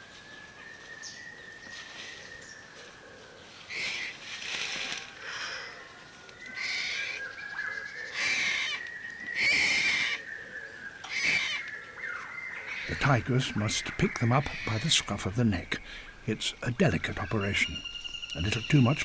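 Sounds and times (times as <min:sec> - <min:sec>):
tiger cub crying: 0:06.5 - 0:07.2, 0:08.0 - 0:08.8, 0:09.4 - 0:10.2, 0:11.0 - 0:11.7, 0:12.7 - 0:19.0
thin steady high tone: 0:13.0 - 0:19.0.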